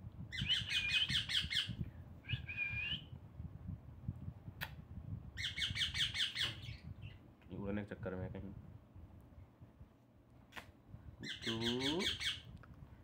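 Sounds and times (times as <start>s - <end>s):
sharp click: 4.6s - 4.8s
parakeet squawking: 11.2s - 12.4s.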